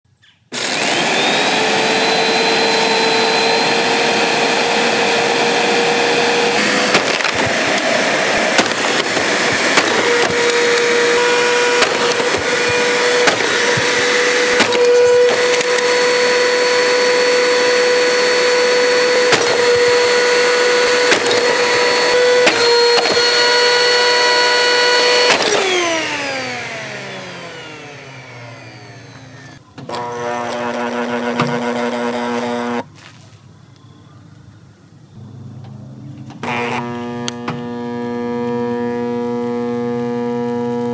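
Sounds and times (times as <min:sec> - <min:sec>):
vacuum cleaner motor whining: 0:00.5 - 0:32.9, 0:35.6 - 0:40.9
sharp knocks and cracks: 0:06.9 - 0:07.9, 0:08.5 - 0:10.9, 0:11.7 - 0:14.0, 0:14.6 - 0:15.8, 0:19.3 - 0:19.9, 0:21.0 - 0:21.6.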